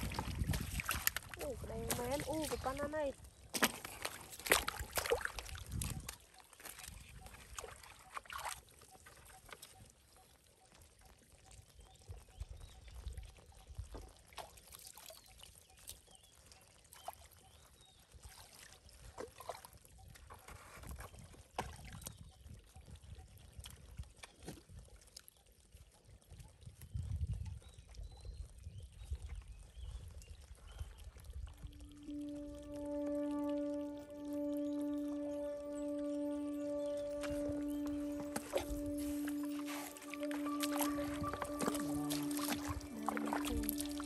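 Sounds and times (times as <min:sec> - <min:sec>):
wet mud squelching: 0:00.0 - 0:09.7, 0:35.2 - 0:44.0
muddy water splashing: 0:00.0 - 0:10.2, 0:13.7 - 0:22.2, 0:30.5 - 0:44.0.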